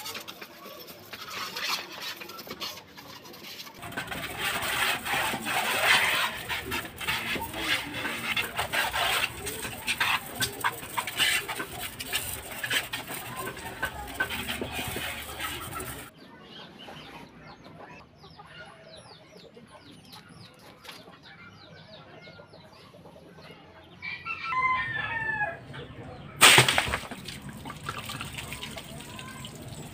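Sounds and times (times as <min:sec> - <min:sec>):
chickens chirping: 0:00.0 - 0:26.4
rooster crowing: 0:24.0 - 0:25.6.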